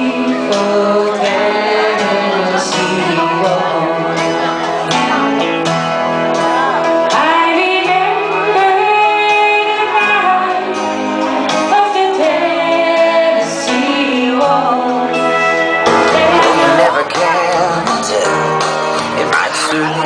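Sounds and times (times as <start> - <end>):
woman singing into microphone: 0.0 - 4.5, 7.1 - 17.7
country-rock band playing: 0.0 - 20.0.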